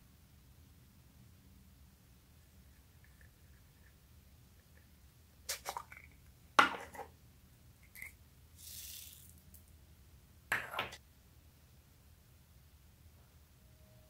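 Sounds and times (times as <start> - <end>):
foam beads pouring: 8.6 - 9.6.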